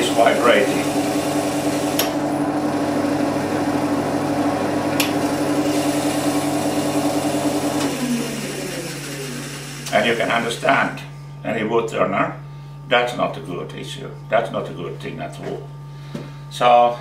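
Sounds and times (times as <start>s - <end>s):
wood lathe humming: 0.0s - 10.9s.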